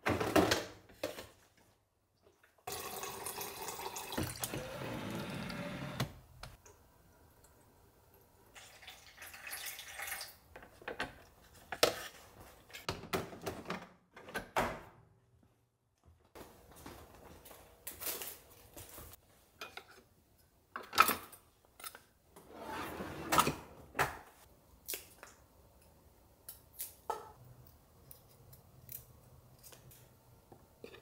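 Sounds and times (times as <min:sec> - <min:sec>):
water running from tap: 0:02.7 - 0:05.6, 0:08.6 - 0:10.4.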